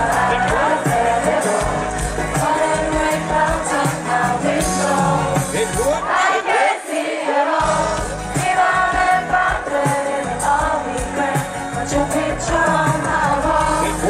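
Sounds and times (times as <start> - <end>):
hip-hop music over sound system: 0.0 - 6.1, 7.6 - 14.0
crowd noise: 0.0 - 14.0.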